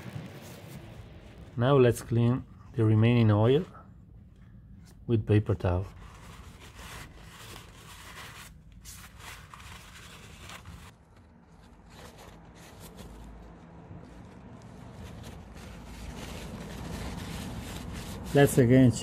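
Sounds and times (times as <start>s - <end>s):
paper towel rustling and rubbing: 0.0s - 3.8s, 4.8s - 19.0s.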